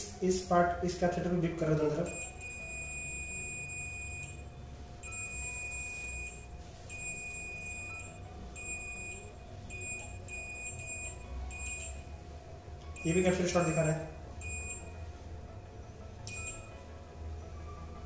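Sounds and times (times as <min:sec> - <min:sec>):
multimeter beeping: 0:02.0 - 0:12.1, 0:13.0 - 0:15.0, 0:16.3 - 0:16.8.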